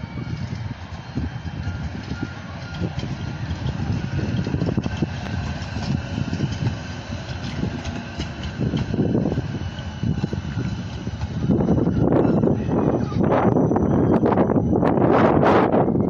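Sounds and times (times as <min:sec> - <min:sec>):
tram wheels rumbling: 0:00.0 - 0:16.0.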